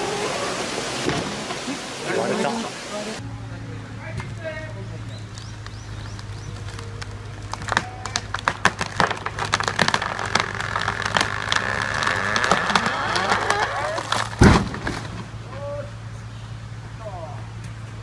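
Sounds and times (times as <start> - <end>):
tree trunk cracking and splintering: 5.1 - 15.4
heavy thud of trunk falling: 12.5 - 15.4.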